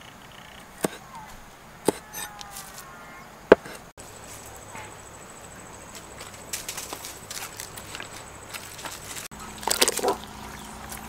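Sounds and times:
knife chopping on wooden block: 0.8 - 1.0, 1.8 - 2.2, 3.5 - 3.8.

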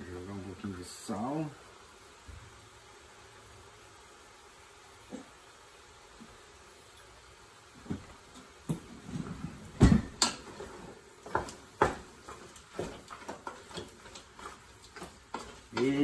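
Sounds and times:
wooden spatula scraping metal pot: 12.2 - 16.0.

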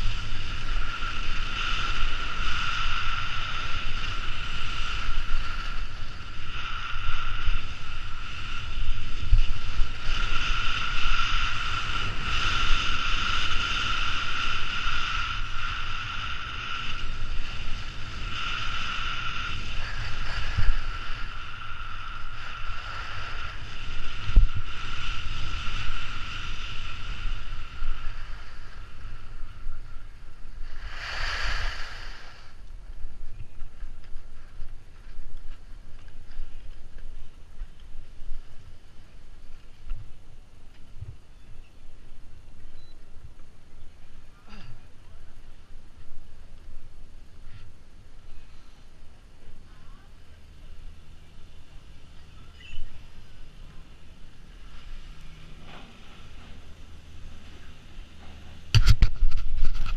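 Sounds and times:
skis scraping on snow: 0.0 - 29.9
skis skidding hiss: 0.0 - 39.9
wind buffeting microphone: 0.0 - 44.3, 44.9 - 59.9
high whistle: 52.4 - 53.1.

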